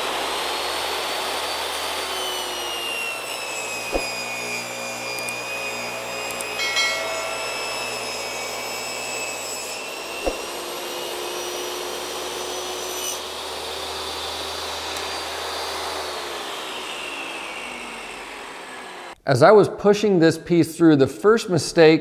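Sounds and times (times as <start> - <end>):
table saw cutting wood: 0.0 - 19.2
sharp knock: 3.9 - 4.2, 10.2 - 10.5.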